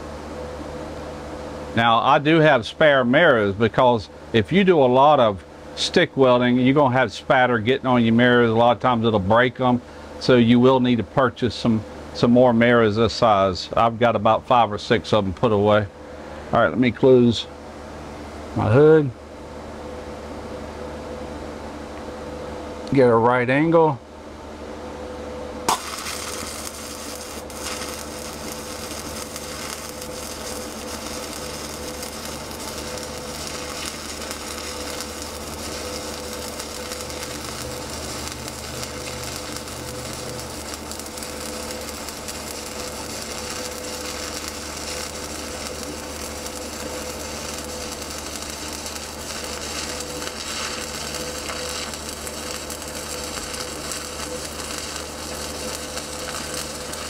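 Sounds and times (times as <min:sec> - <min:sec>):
welding arc crackling and sizzling: 0:25.6 - 0:57.0
welding arc strike: 0:25.6 - 0:57.0.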